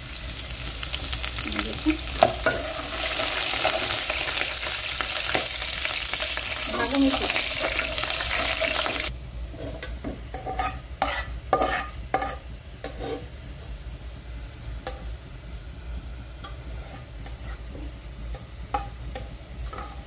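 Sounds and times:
faint sizzle: 0.0s - 20.0s
spatula scraping and knocking pot: 9.6s - 13.3s, 16.4s - 20.0s.

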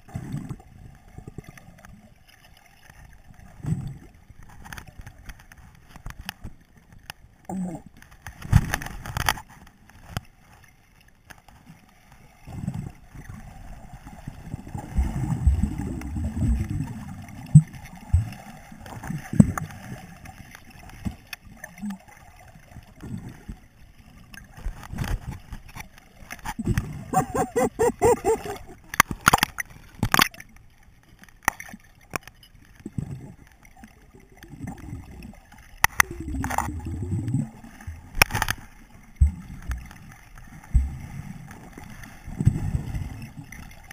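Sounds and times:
underwater gurgling and sloshing: 0.0s - 43.9s
sharp knocks underwater: 8.2s - 9.4s, 14.8s - 19.7s, 28.4s - 30.4s, 35.8s - 40.0s, 40.7s - 41.1s.

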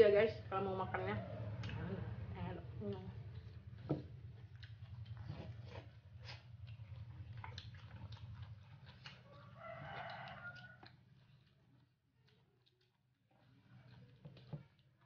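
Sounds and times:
steady low hum: 0.0s - 9.3s
rooster crowing: 9.2s - 10.9s.

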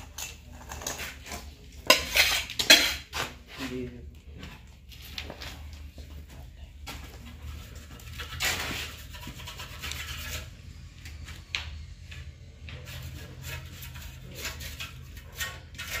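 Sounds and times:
scraping and rubbing: 0.0s - 5.9s, 6.9s - 16.0s.

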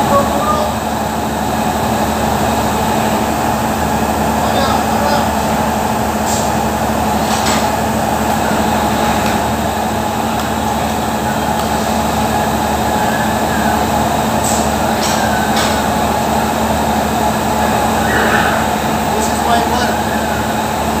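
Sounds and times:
factory machinery drone: 0.0s - 21.0s.

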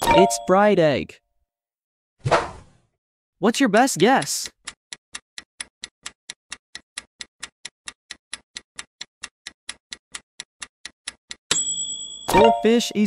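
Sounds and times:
ringing alarm sound effect: 0.0s - 0.6s, 11.5s - 13.0s
clock ticking: 4.0s - 11.7s.

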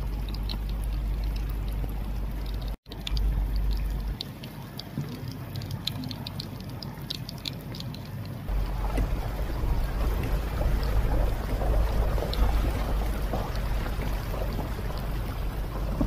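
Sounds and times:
floodwater rushing over stones: 2.9s - 16.0s
wind buffeting microphone: 8.5s - 16.0s.

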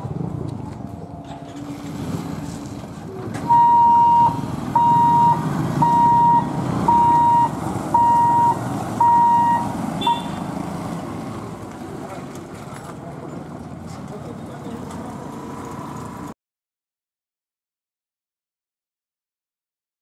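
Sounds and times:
motorcycle engines idling: 0.1s - 16.3s
crossing barrier warning beeps: 3.0s - 10.5s.

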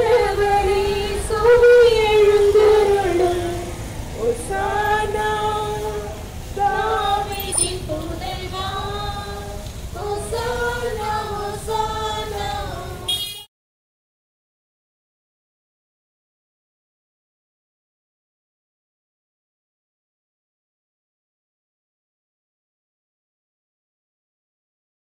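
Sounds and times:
crowd singing a hymn: 0.0s - 13.3s
low rumble of street noise: 0.0s - 13.5s.

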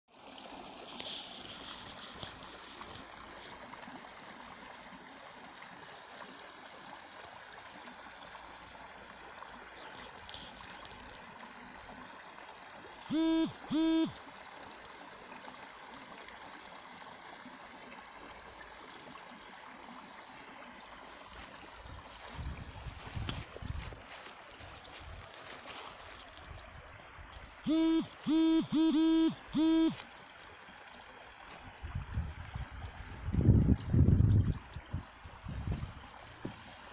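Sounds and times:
creek water running: 0.1s - 36.9s
short loud pitched tones: 13.1s - 14.2s, 27.6s - 30.0s.

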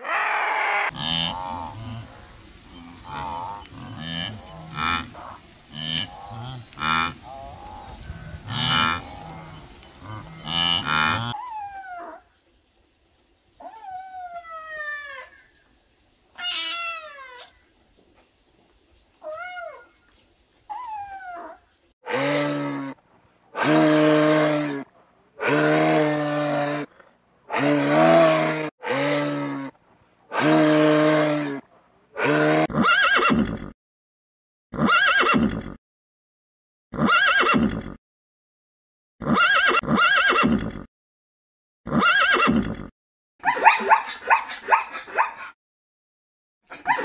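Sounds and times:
horse whinnying: 32.2s - 33.7s, 34.7s - 35.8s, 36.9s - 38.0s, 39.2s - 40.9s, 41.9s - 42.9s
rapid choppy animal calls: 43.5s - 45.6s.

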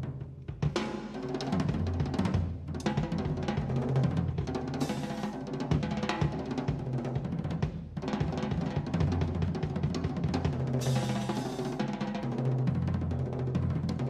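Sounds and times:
jazz drum solo: 0.0s - 14.0s.

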